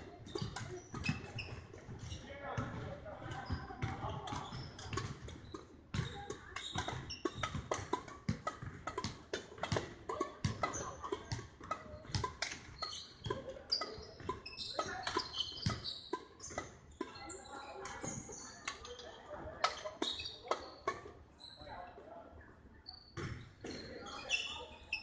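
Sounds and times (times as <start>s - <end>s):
shoe squeaks: 0.0s - 2.4s, 3.3s - 8.0s, 10.4s - 21.8s, 22.8s - 25.0s
racket hitting shuttlecock: 6.2s - 13.5s.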